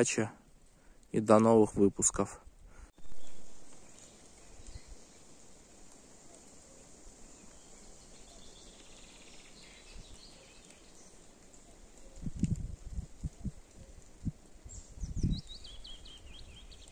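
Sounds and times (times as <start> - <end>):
soft steady hiss: 0.0 - 16.9.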